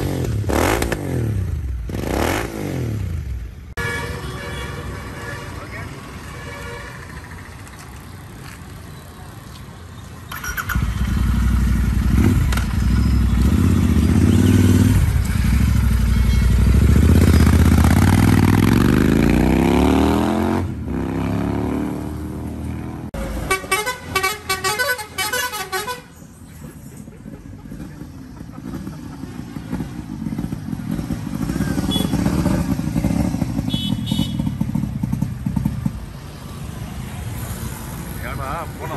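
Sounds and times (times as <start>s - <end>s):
motorcycle engine revving and accelerating: 0.0s - 3.4s, 10.3s - 23.2s, 27.7s - 36.7s
vehicle horn honking: 3.8s - 7.1s, 23.4s - 26.2s, 31.8s - 32.4s, 33.6s - 34.6s.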